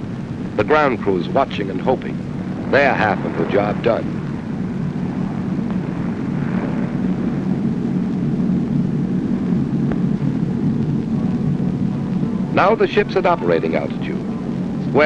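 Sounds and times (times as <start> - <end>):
propeller aircraft engines droning: 0.0 - 15.0.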